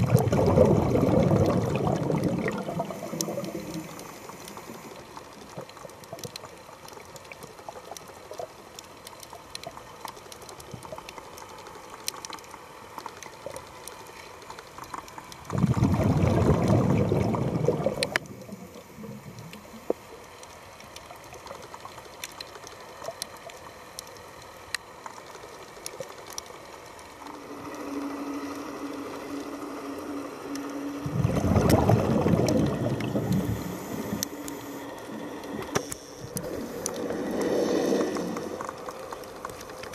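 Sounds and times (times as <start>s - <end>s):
diver's exhaled bubbles rushing: 0.0s - 3.9s, 15.5s - 19.4s, 31.0s - 34.2s
crackle of small clicks: 0.0s - 39.9s
faint steady hum: 0.0s - 39.9s.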